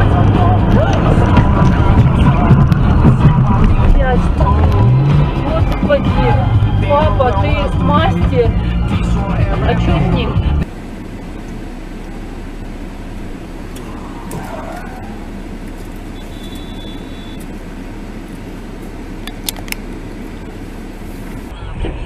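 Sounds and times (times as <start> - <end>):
car engine and road noise: 0.0 - 22.0.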